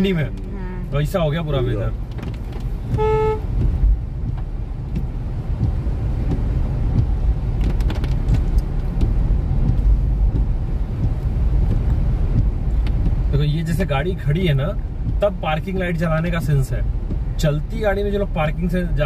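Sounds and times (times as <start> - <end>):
engine and tyre rumble: 0.0 - 19.0
short car horn toot: 3.0 - 3.5.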